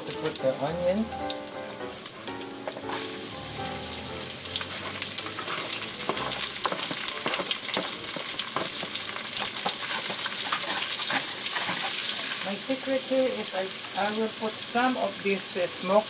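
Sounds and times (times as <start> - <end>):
food sizzling in hot oil: 0.0 - 16.0
utensil scraping a pan: 4.7 - 12.4.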